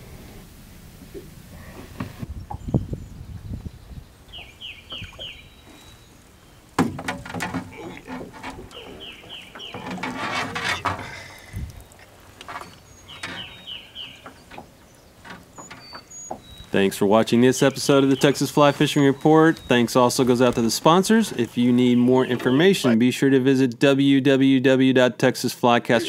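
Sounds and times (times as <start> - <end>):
bird calling falling notes: 4.3 - 16.9
knocking and scuffling on boat: 6.8 - 16.8.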